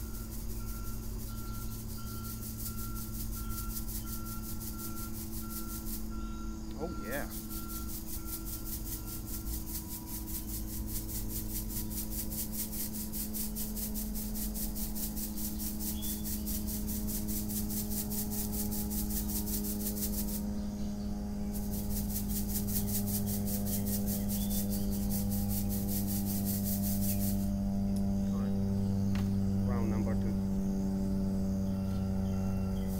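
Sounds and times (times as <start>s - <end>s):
soil rasping through mesh sieve: 0.0s - 6.1s, 6.8s - 20.4s, 21.5s - 27.6s
steady low hum: 0.0s - 32.9s.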